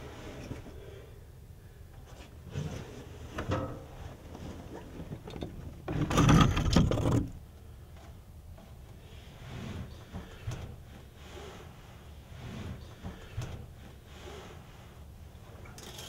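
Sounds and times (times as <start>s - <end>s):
handling knocks and rustles: 2.0s - 9.0s
rifle scraping on wooden rack: 9.2s - 14.9s.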